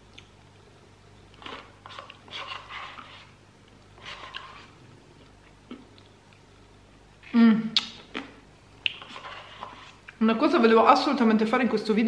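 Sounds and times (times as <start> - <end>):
mouth noises eating: 7.2 - 10.2.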